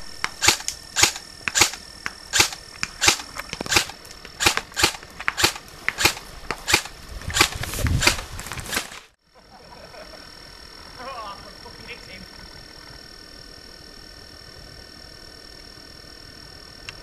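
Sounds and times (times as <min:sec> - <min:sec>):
airsoft gun shots: 0:00.2 - 0:09.0.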